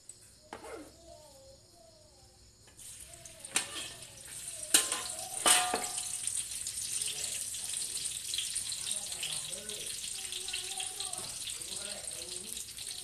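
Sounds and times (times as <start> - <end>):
garlic sizzling in hot oil: 2.7 - 13.0.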